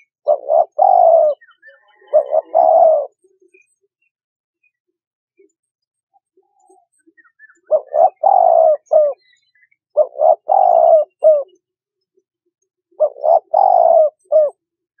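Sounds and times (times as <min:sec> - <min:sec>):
dove cooing: 0:00.2 - 0:03.2, 0:07.6 - 0:09.3, 0:10.0 - 0:11.6, 0:13.0 - 0:14.6.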